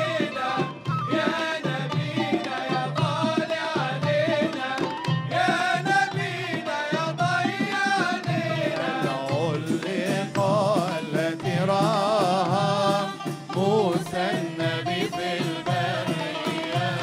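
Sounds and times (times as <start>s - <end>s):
reed flute melody: 0.0s - 1.9s
frame drums beating: 0.0s - 17.0s
men singing: 0.0s - 17.0s.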